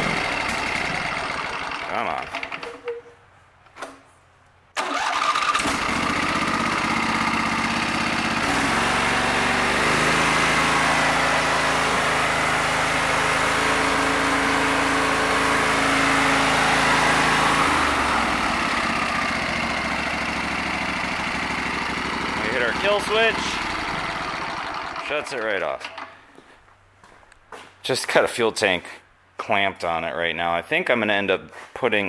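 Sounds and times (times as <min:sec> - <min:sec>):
small engine starting and running: 0:00.0 - 0:02.8, 0:04.8 - 0:26.2
electric starter cranking: 0:00.0 - 0:02.9, 0:04.8 - 0:26.2.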